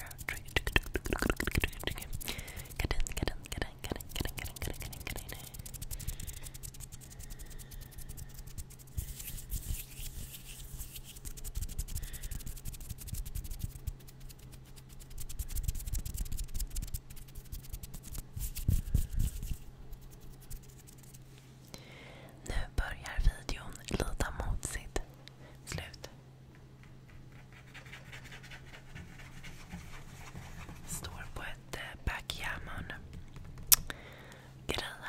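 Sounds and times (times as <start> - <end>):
low steady hum: 0.0 - 35.0
hands rubbing near microphone: 3.9 - 21.5, 26.8 - 31.5.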